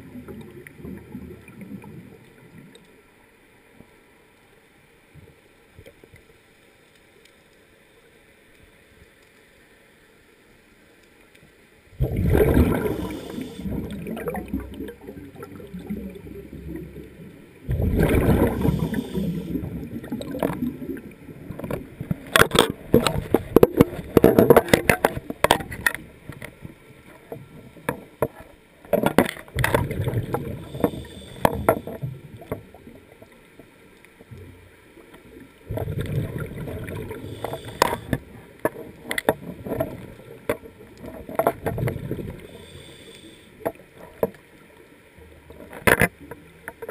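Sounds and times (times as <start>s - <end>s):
diver exhaling bubbles underwater: 12.0s - 21.1s, 29.6s - 32.4s, 35.7s - 38.4s.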